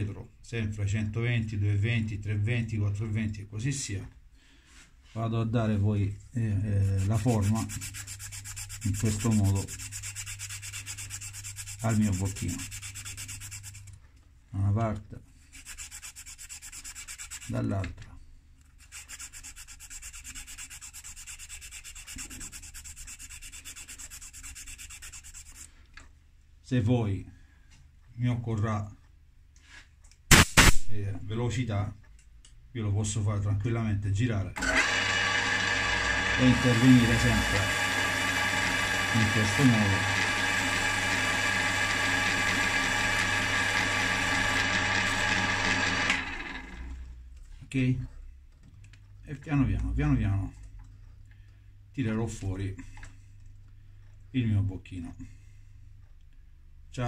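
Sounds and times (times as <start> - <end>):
sandpaper rasping on spinning stem: 6.7 - 14.0, 15.5 - 17.6, 18.7 - 25.7, 36.2 - 46.2
lathe motor hum: 34.6 - 47.0.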